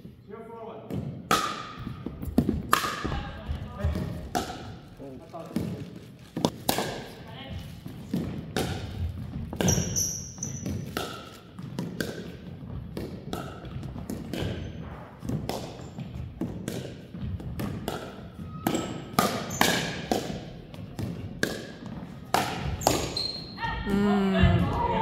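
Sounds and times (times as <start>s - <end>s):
ball bouncing on wooden floor: 0.9s - 4.8s, 5.5s - 23.2s
paddles hitting plastic ball: 0.9s - 10.0s, 10.6s - 14.6s, 15.2s - 23.2s
shoes squeaking on floor: 9.1s - 11.8s, 13.6s - 15.2s, 18.2s - 20.0s, 22.7s - 23.8s.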